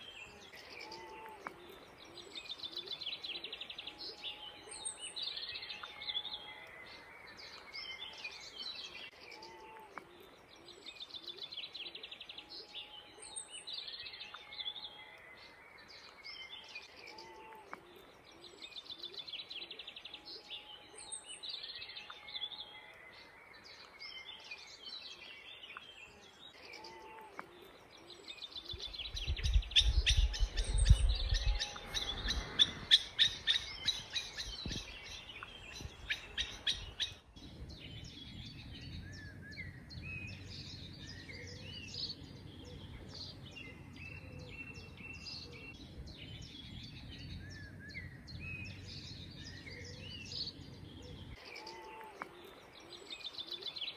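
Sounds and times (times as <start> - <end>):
birds singing and calling: 0.0 - 53.9
bird singing rapid repeated notes: 27.7 - 51.7
low rumble: 37.3 - 44.2.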